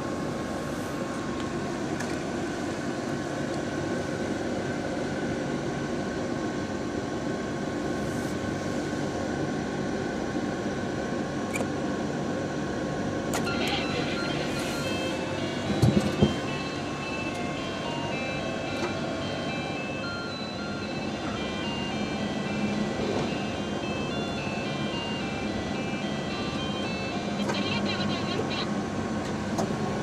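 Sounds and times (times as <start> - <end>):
vending machine humming: 13.1 - 30.0.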